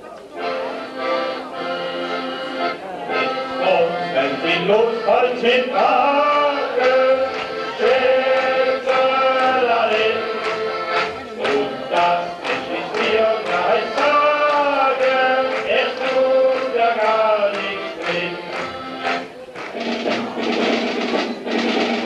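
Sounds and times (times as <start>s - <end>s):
steady drum beat: 15.5s - 22.0s.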